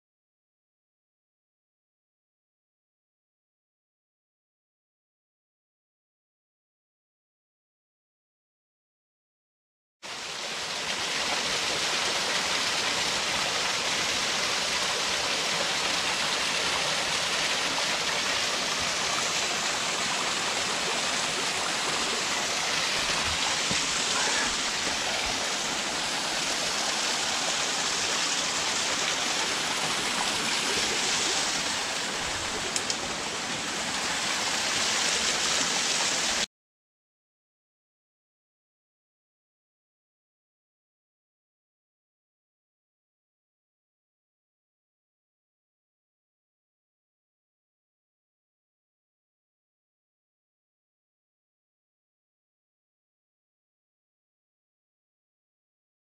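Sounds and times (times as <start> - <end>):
mountain stream running: 10.1 - 36.5.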